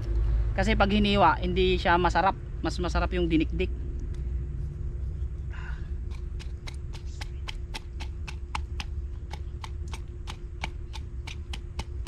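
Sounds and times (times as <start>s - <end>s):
pounding chili peppers: 6.0s - 12.0s.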